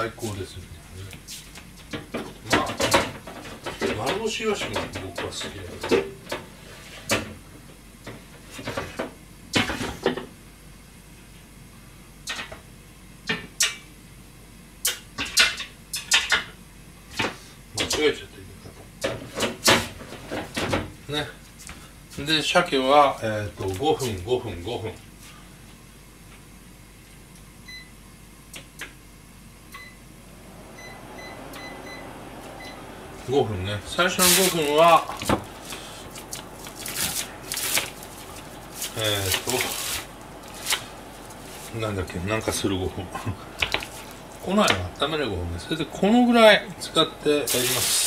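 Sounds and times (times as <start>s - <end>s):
appliance control panel beeps: 27.6s - 28.0s, 29.7s - 30.0s, 30.8s - 32.9s.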